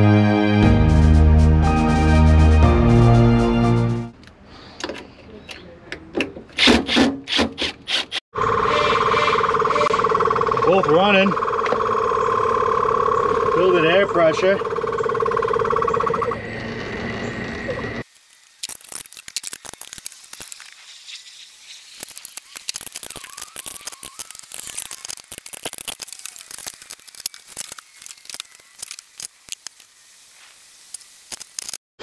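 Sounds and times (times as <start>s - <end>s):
air compressors running: 8.5s - 18.0s.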